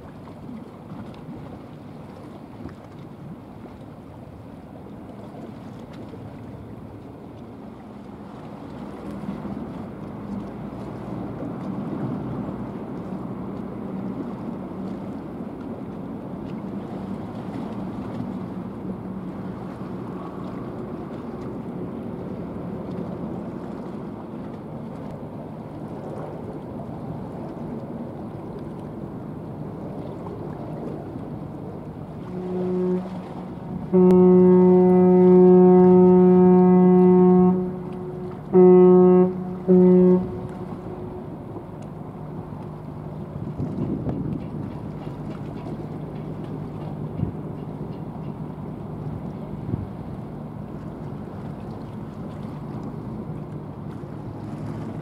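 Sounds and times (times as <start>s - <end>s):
low rumble of cargo ship: 0.0s - 55.0s
wind: 0.0s - 55.0s
ship's horn blasts: 28.8s - 44.4s, 45.1s - 55.0s.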